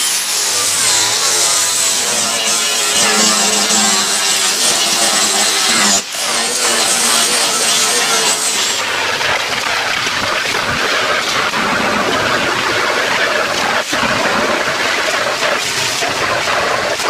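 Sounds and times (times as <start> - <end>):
grinding disc whine: 0.0 - 9.4.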